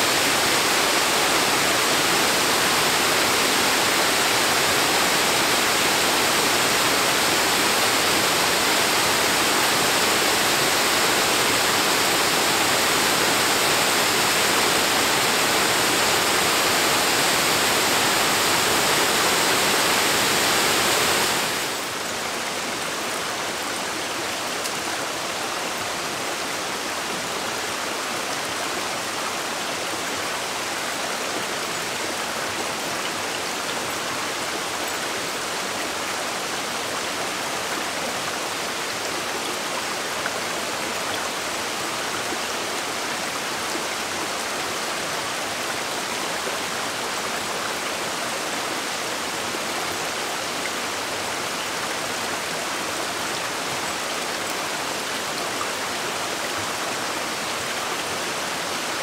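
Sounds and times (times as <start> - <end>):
water rushing: 0.0 - 59.0.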